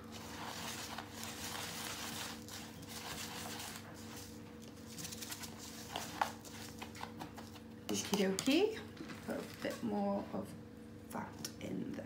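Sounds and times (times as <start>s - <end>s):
stick stirring substrate in cup: 0.0s - 7.4s
steady low hum: 0.0s - 12.0s.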